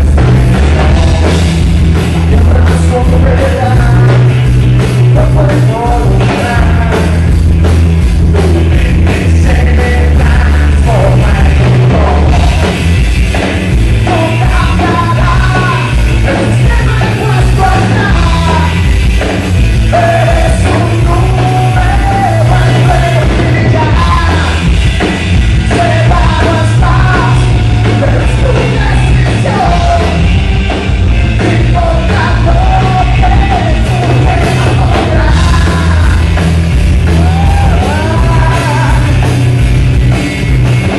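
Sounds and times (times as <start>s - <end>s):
rock band playing loudly: 0.0s - 40.9s
man singing and yelling: 2.2s - 4.4s, 5.0s - 7.4s, 8.2s - 12.8s, 13.9s - 18.9s, 19.7s - 24.8s, 25.5s - 30.4s, 31.2s - 36.4s, 37.0s - 39.4s.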